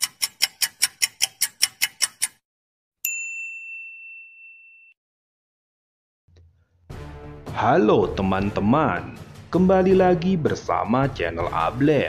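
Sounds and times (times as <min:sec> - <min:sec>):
typewriter keys clacking: 0:00.0 - 0:02.4.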